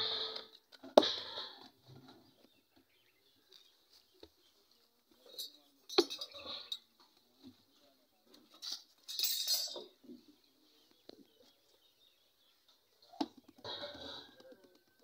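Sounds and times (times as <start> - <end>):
metal rod clink: 5.3 - 6.8, 8.6 - 9.9.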